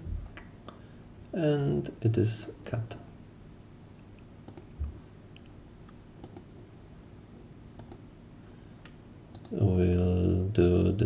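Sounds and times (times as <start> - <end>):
low room hum: 0.0 - 11.0
faint mouse clicks: 4.1 - 6.5, 7.8 - 8.1, 8.8 - 9.6.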